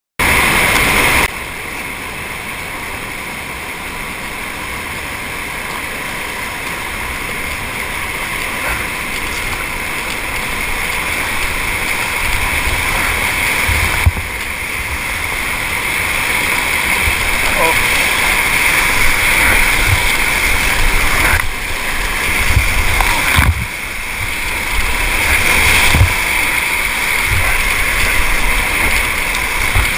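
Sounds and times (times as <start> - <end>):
whitewater rapids rushing: 0.2 - 29.9
low rumbling on microphone: 17.0 - 29.9.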